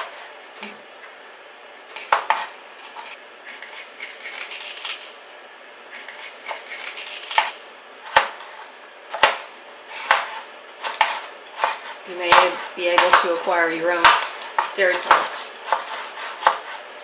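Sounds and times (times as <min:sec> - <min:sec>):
knife strikes on cutting board: 0:14.0 - 0:16.8.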